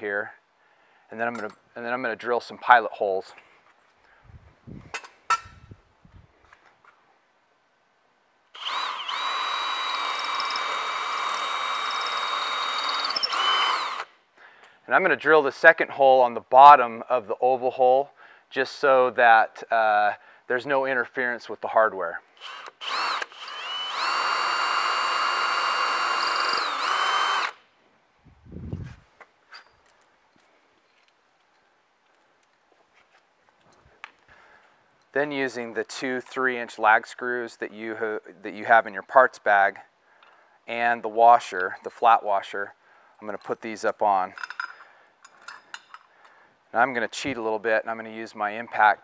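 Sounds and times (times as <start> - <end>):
cordless drill boring into wood: 8.5 - 14.1, 22.4 - 27.6.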